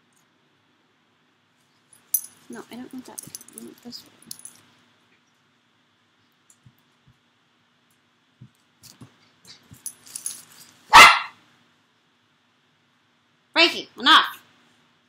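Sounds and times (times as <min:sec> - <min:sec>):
dog barking: 0:10.9 - 0:11.4.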